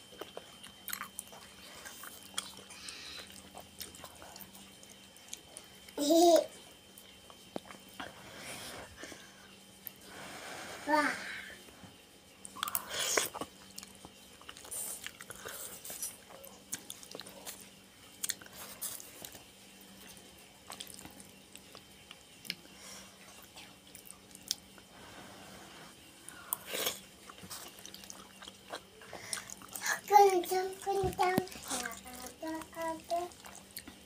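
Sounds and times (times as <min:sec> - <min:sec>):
wet chewing: 0:00.1 - 0:05.9, 0:20.6 - 0:22.8, 0:26.3 - 0:29.9.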